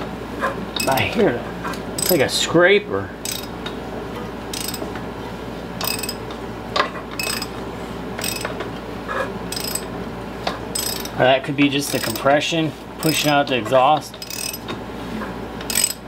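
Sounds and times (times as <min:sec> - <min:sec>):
ratchet wrench clicking: 0:00.8 - 0:01.0, 0:02.0 - 0:02.2, 0:03.2 - 0:03.5, 0:04.5 - 0:04.8, 0:05.8 - 0:06.2, 0:07.2 - 0:07.5, 0:08.2 - 0:08.5, 0:09.5 - 0:09.9, 0:10.8 - 0:11.2, 0:11.9 - 0:12.3, 0:14.2 - 0:14.6, 0:15.7 - 0:16.0.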